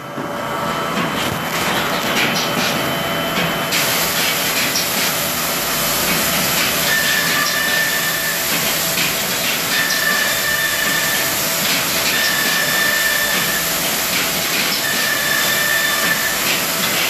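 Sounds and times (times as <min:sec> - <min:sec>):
high machine whine: 0:00.0 - 0:17.0
woodworking machinery hiss: 0:03.7 - 0:17.0.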